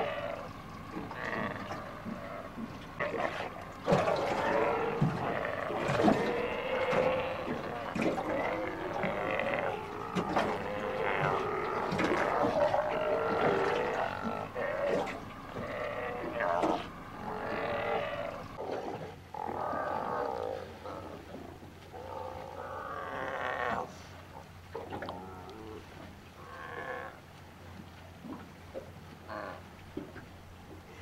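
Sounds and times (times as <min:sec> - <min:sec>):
sea lions calling: 0:00.0 - 0:27.4, 0:28.3 - 0:31.0
faint low hum: 0:00.0 - 0:31.0.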